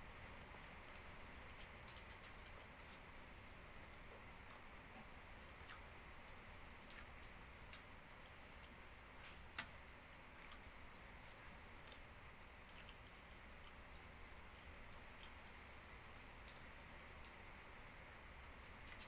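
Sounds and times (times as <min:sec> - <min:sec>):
chewing clicks: 0:10.3 - 0:11.0, 0:11.8 - 0:15.5, 0:16.4 - 0:17.4.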